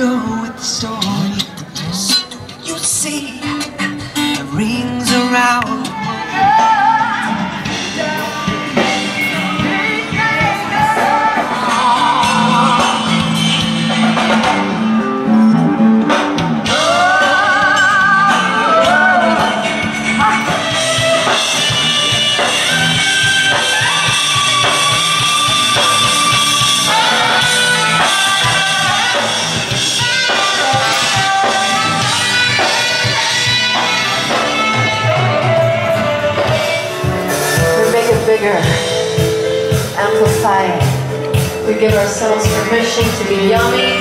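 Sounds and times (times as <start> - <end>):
person singing with vibrato: 0.0 - 44.0.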